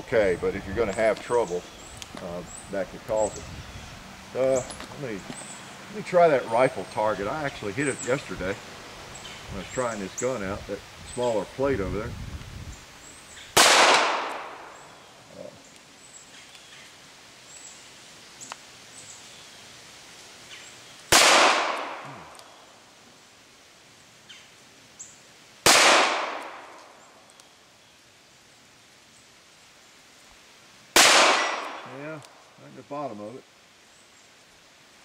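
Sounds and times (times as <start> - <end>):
revolver shots with echo: 13.6 - 14.8, 21.1 - 22.2, 25.7 - 26.7, 31.0 - 31.9.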